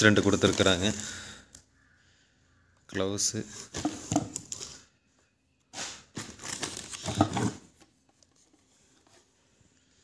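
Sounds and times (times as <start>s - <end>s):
packaging rustling and crinkling: 0.0s - 1.1s, 6.1s - 9.4s.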